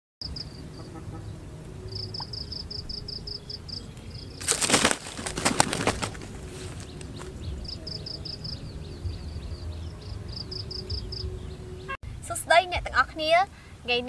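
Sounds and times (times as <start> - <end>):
bird wings flapping hard: 4.4 - 7.3.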